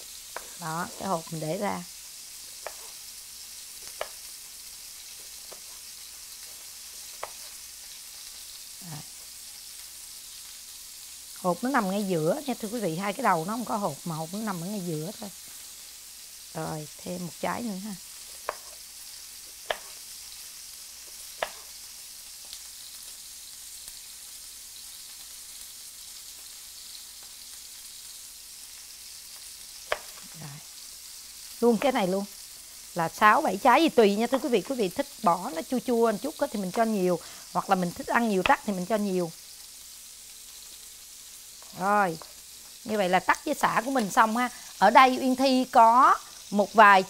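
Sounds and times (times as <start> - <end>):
meat sizzling in a frying pan: 0.0 - 47.0
knife tapping cutting board: 2.6 - 2.9, 4.0 - 4.2, 18.4 - 18.8, 19.6 - 19.9, 21.4 - 21.7, 29.9 - 30.2.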